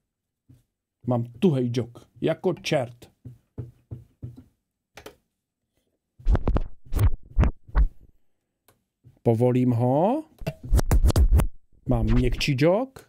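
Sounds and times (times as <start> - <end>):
dj scratching a track: 10.8 - 12.5.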